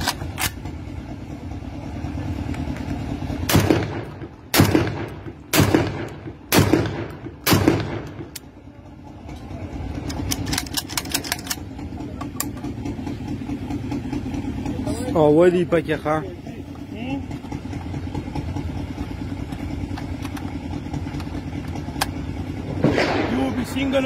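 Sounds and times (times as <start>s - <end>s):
gunshots with echo: 3.5s - 8.3s, 22.8s - 23.7s.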